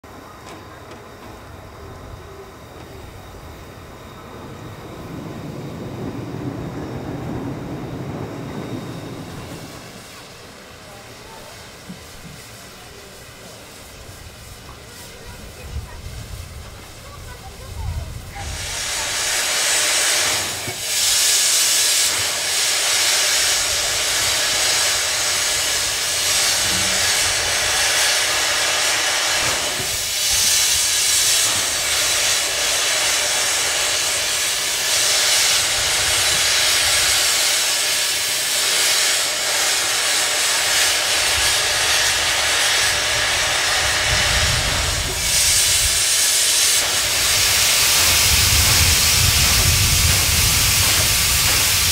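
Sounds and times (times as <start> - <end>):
steam hissing: 0.1 - 51.9
low rumble: 3.1 - 10.5.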